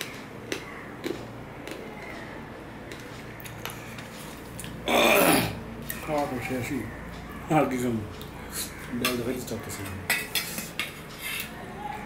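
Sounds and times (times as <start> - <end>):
fingers mixing rice on metal plate: 7.7 - 11.6.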